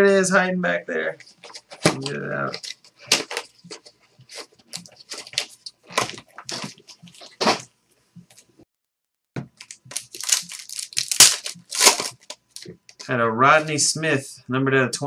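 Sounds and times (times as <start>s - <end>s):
card pack wrapper crinkling and tearing: 9.6s - 12.7s.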